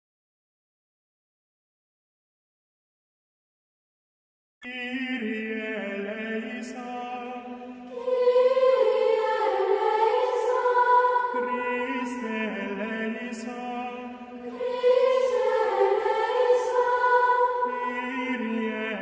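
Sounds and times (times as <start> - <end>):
voices chanting: 7.3 - 19.0.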